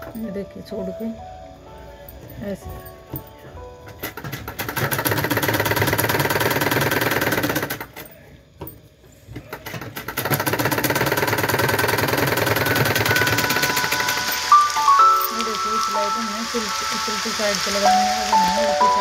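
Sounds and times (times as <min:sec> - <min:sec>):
sewing machine running: 0:04.0 - 0:08.0, 0:09.6 - 0:14.6.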